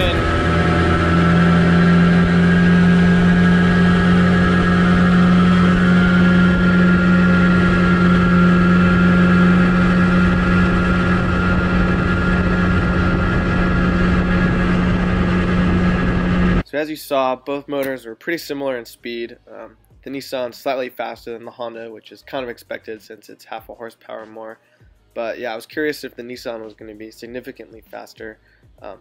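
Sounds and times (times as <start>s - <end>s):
outboard motor at full throttle: 0.0s - 16.6s.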